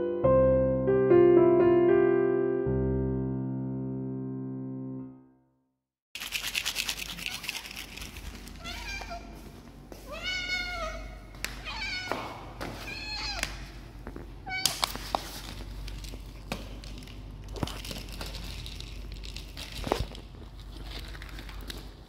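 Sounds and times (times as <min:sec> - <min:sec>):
cat meowing: 0:08.6 - 0:09.4, 0:10.1 - 0:13.8, 0:14.4 - 0:14.9.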